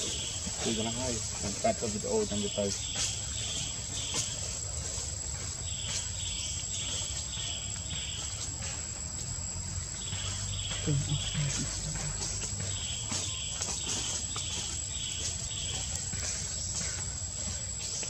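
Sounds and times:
insects chirping: 0:00.0 - 0:18.0
low voice: 0:10.9 - 0:12.2.

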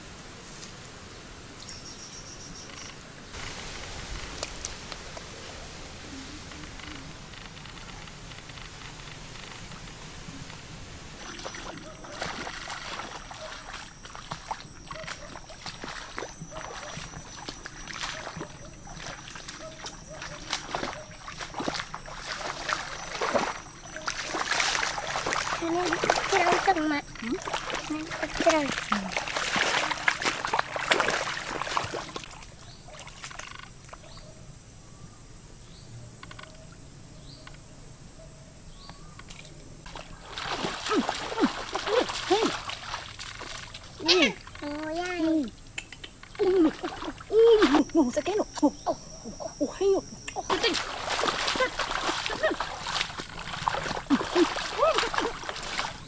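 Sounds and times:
water splashing and sloshing: 0:03.3 - 0:34.0, 0:39.2 - 0:56.0
high-pitched insect drone: 0:38.9 - 0:56.0.

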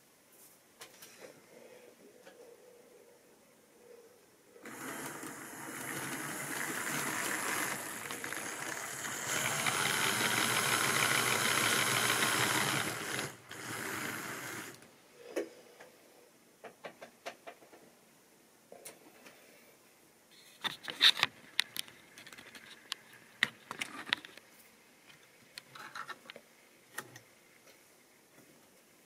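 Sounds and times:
model train motor whirring: 0:04.6 - 0:14.8.

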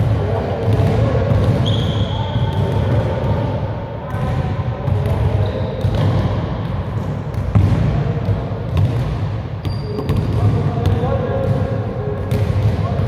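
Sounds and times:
basketball bouncing in gym: 0:00.0 - 0:13.0.

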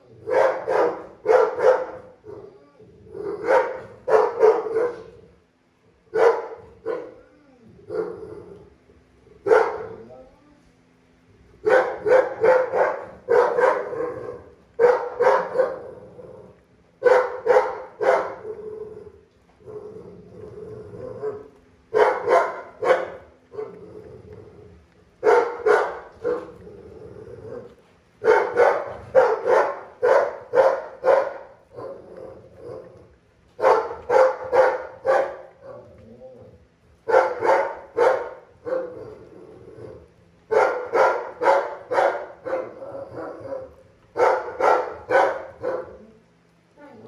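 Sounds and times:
dog barking: 0:00.2 - 0:02.2, 0:03.4 - 0:05.2, 0:06.1 - 0:07.2, 0:09.4 - 0:10.0, 0:11.6 - 0:15.8, 0:17.0 - 0:18.5, 0:21.2 - 0:23.8, 0:25.2 - 0:26.5, 0:28.2 - 0:32.0, 0:33.6 - 0:35.8, 0:37.0 - 0:39.0, 0:40.5 - 0:46.0.

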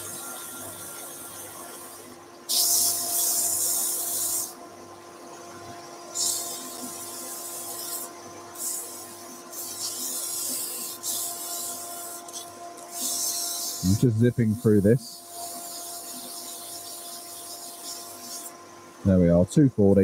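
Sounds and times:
sandpaper hissing on spinning wood: 0:02.5 - 0:04.6, 0:06.1 - 0:18.6.

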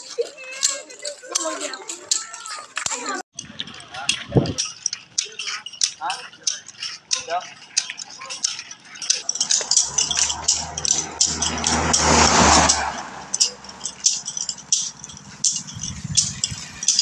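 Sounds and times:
sharp rattling clicks: 0:02.8 - 0:17.0
road vehicle passing: 0:09.2 - 0:17.0.

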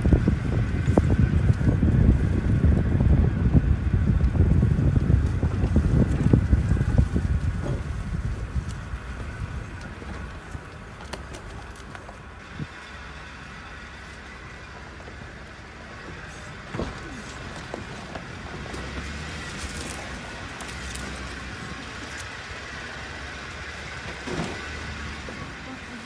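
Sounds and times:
vehicle knocking over bumps: 0:00.0 - 0:12.3, 0:16.1 - 0:21.8, 0:23.0 - 0:25.6
vehicle engine running: 0:00.0 - 0:26.0.

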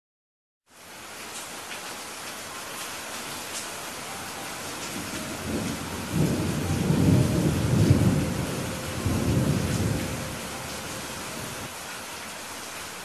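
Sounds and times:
steady rain: 0:00.6 - 0:13.0
rolling thunder rumble: 0:04.4 - 0:11.7.

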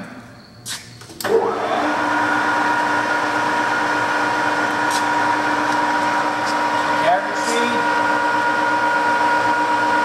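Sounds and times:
lathe gear whine: 0:01.2 - 0:10.0
lathe spinning up and running: 0:01.2 - 0:10.0.

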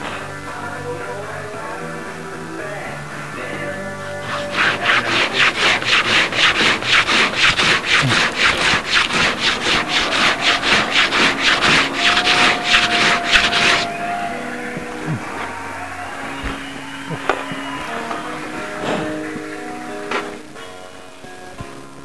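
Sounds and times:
faint music: 0:00.0 - 0:22.0
hand tool strokes on wood: 0:04.2 - 0:15.2.

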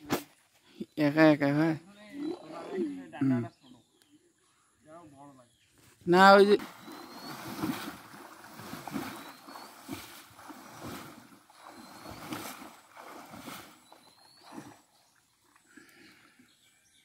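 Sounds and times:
water splashing from swimming: 0:06.4 - 0:15.9.

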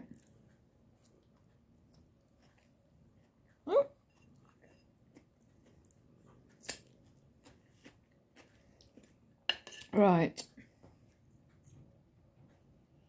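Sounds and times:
fork tapping and scraping on plate: 0:09.5 - 0:09.9.

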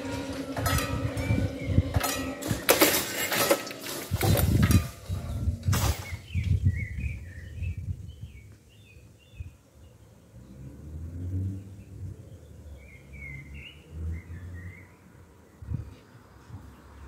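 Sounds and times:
wind buffeting microphone: 0:00.0 - 0:03.0, 0:03.8 - 0:09.6, 0:15.5 - 0:17.0
small birds chirping: 0:05.9 - 0:10.6.

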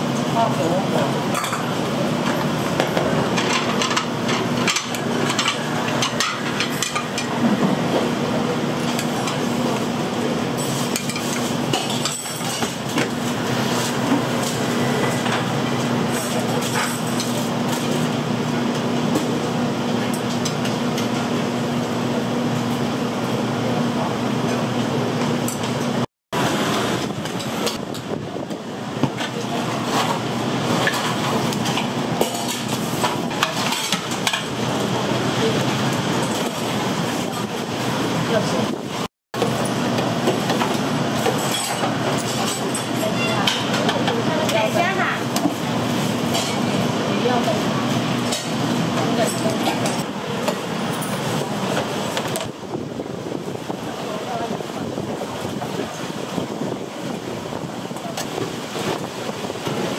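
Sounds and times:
dishes and utensils clattering: 0:01.3 - 0:08.1, 0:10.5 - 0:15.5, 0:16.1 - 0:18.0, 0:29.0 - 0:34.6, 0:39.4 - 0:45.5, 0:48.2 - 0:52.5.

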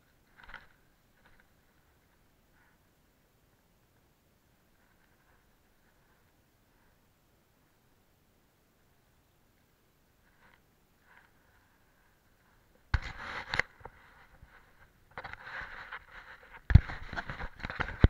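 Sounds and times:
scraping and rustling: 0:12.4 - 0:18.0.

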